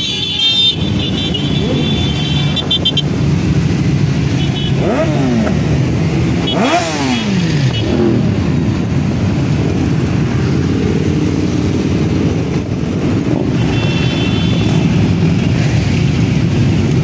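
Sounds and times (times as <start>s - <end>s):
motorcycles riding past: 0.7s - 17.0s.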